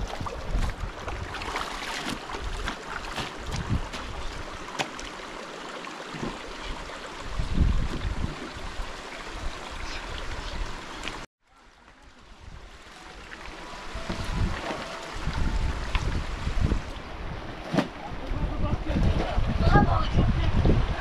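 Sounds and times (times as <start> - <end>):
wind on microphone: 0.0 - 1.5, 2.3 - 4.6, 7.2 - 10.9, 13.9 - 21.0
rushing river water: 0.0 - 21.0.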